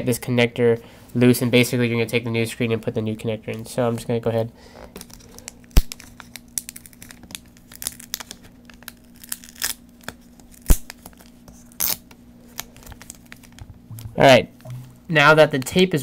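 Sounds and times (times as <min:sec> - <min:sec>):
adhesive tape peeling: 0:05.0 - 0:14.1.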